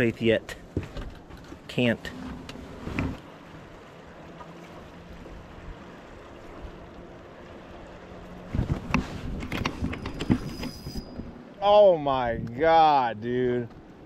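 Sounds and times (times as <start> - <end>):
knocks and clatters on boat: 0.5 - 3.3, 8.4 - 11.4.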